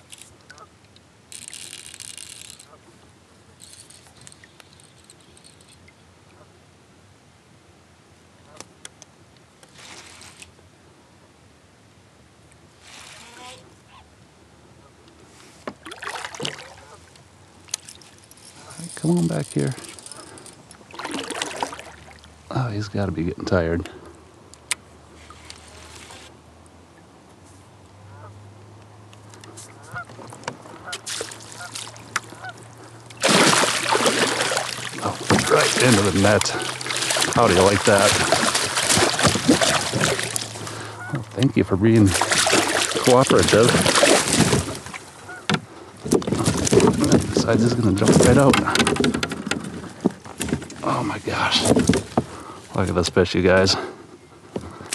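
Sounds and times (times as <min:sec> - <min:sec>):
fish thrashing in water: 0:15.8 - 0:16.8, 0:19.8 - 0:22.3, 0:30.9 - 0:45.4, 0:46.0 - 0:50.9
geese honking: 0:31.6 - 0:32.7, 0:40.0 - 0:41.4, 0:45.2 - 0:45.5.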